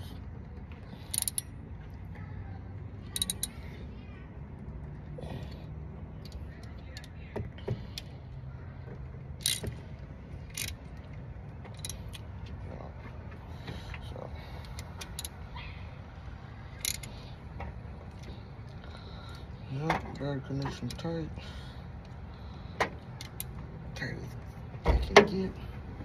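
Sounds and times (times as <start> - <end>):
metallic tool clicks and clinks: 1.1 - 1.5, 3.1 - 3.6, 10.5 - 10.8, 16.8 - 17.1.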